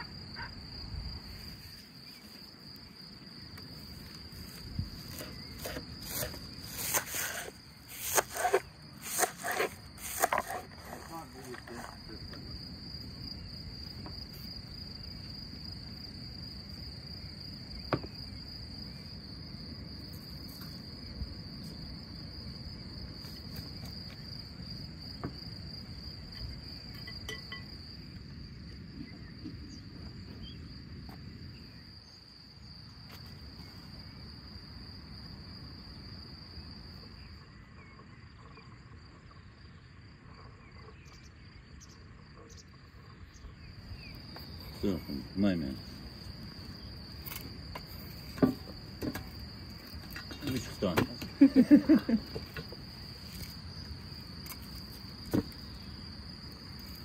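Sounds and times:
high-pitched insect trill: 0:00.0 - 0:57.0.

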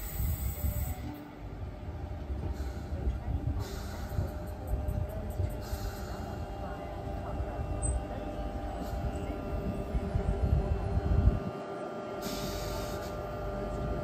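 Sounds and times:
air hiss: 0:00.0 - 0:01.1, 0:05.6 - 0:06.4, 0:12.2 - 0:13.2
train rumbling to a stop: 0:00.0 - 0:14.0.

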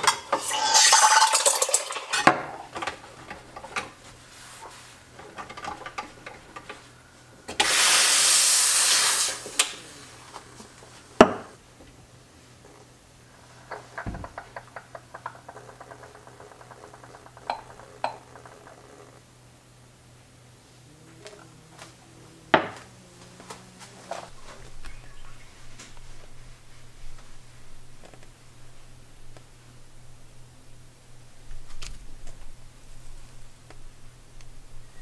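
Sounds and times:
steam wand hissing: 0:00.3 - 0:01.5, 0:07.5 - 0:10.6.

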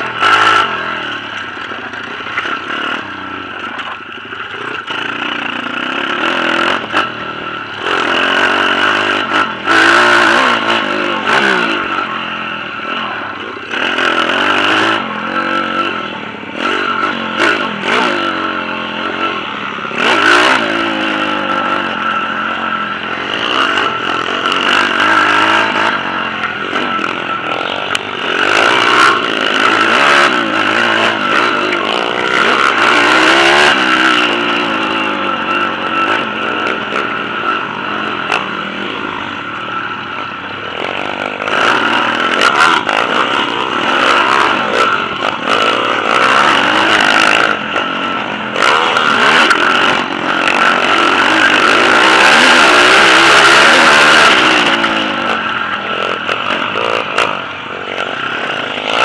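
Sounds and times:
motorbike engine revving: 0:00.0 - 0:59.0.

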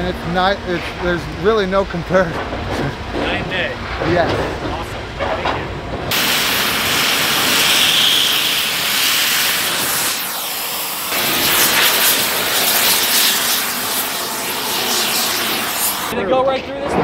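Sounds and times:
cutting torch hissing roar: 0:06.1 - 0:16.2.

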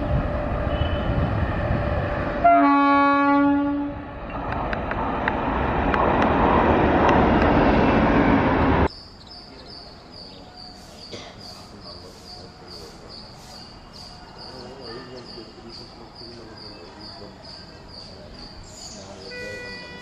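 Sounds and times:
train rumble: 0:00.0 - 0:20.0
train horn blast: 0:00.6 - 0:01.2, 0:02.4 - 0:04.0, 0:19.3 - 0:20.0
train coaches clattering by: 0:04.2 - 0:20.0.

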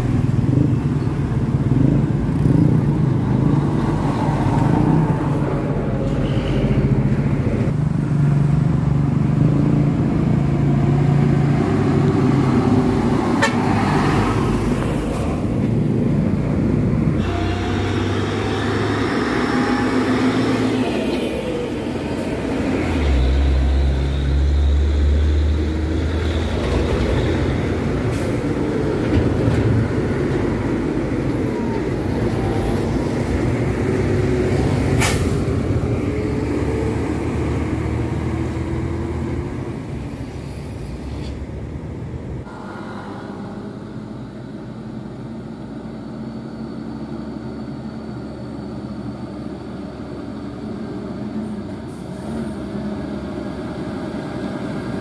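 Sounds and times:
dump trucks driving past: 0:00.0 - 0:55.0
truck horn toots: 0:17.2 - 0:20.1.

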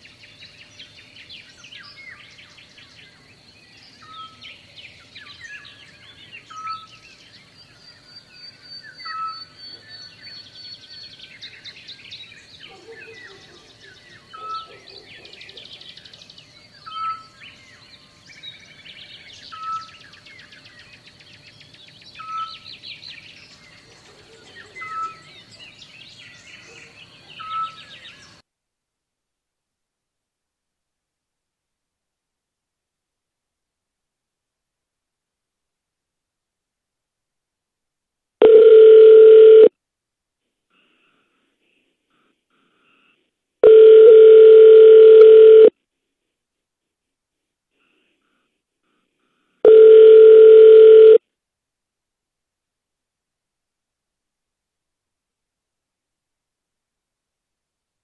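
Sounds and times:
birds chirping and singing: 0:00.2 - 0:28.4.

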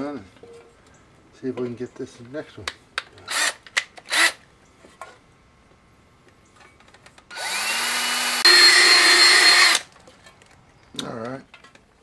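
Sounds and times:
cordless drill whining: 0:03.3 - 0:04.4, 0:07.3 - 0:09.9.

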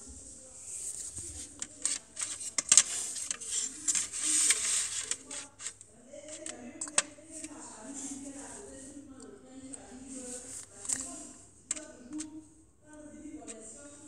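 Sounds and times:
fingers rubbing plastic pieces: 0:00.8 - 0:12.4
plastic clicks and snaps: 0:05.1 - 0:07.6.

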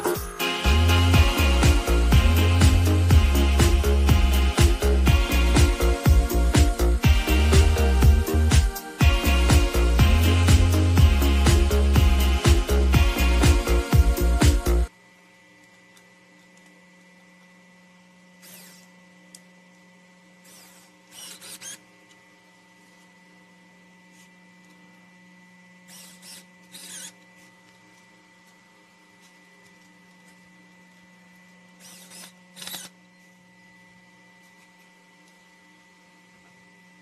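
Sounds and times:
electric screwdriver motor whirring: 0:18.4 - 0:18.9, 0:20.4 - 0:22.2, 0:25.8 - 0:27.5, 0:31.8 - 0:33.0.

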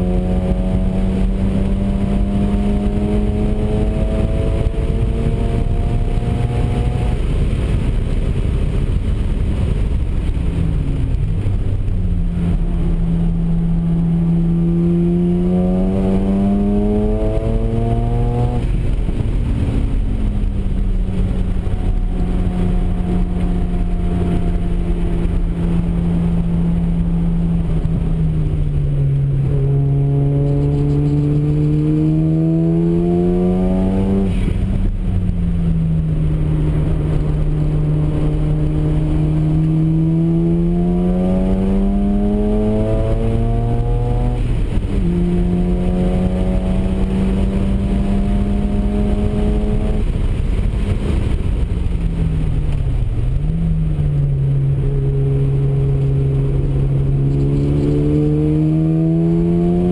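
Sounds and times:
road and wind noise: 0:00.0 - 0:59.9
rotary engine revving: 0:29.5 - 0:34.9, 0:36.4 - 0:50.1, 0:55.3 - 0:59.9.

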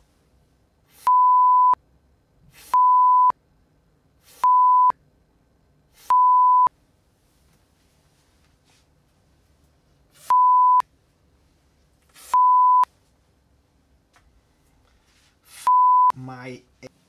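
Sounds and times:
censor bleep tone: 0:01.1 - 0:01.8, 0:02.7 - 0:03.4, 0:04.4 - 0:05.0, 0:06.1 - 0:06.7, 0:10.3 - 0:10.8, 0:12.3 - 0:12.9, 0:15.7 - 0:16.2.

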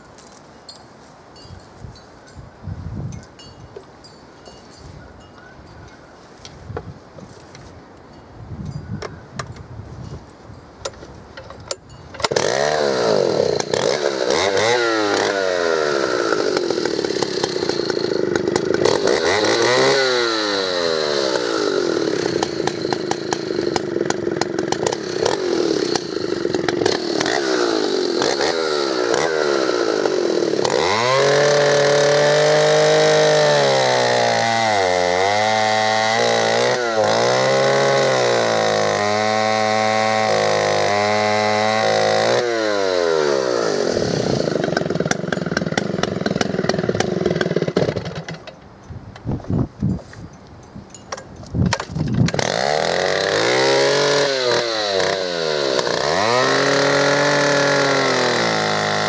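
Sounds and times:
chainsaw cutting log: 0:10.8 - 0:48.6, 0:51.5 - 0:59.0
chainsaw revving: 0:12.2 - 0:48.5, 0:52.2 - 0:59.0.

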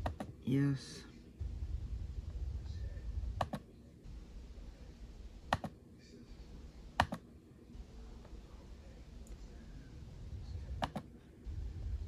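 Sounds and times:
mouse button clicks: 0:05.5 - 0:05.7, 0:07.0 - 0:07.2, 0:10.8 - 0:11.1.

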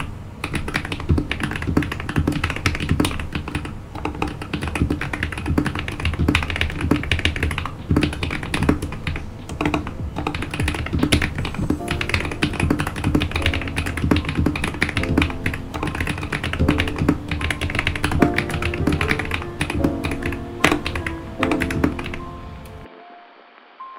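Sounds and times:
fast typing on mechanical keyboard: 0:00.0 - 0:22.2
background music: 0:05.9 - 0:23.9.

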